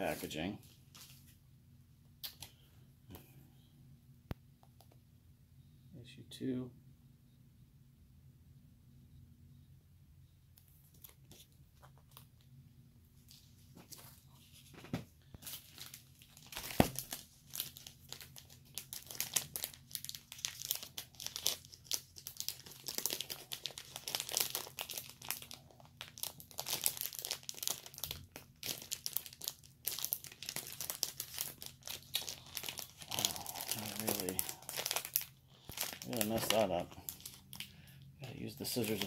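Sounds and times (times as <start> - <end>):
packaging crinkling: 15.3 - 39.0.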